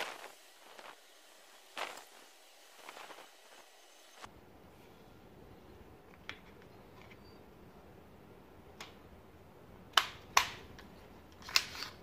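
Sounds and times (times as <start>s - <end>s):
plastic piece clicking: 9.9s - 12.0s
plastic piece snapping into place: 9.9s - 12.0s.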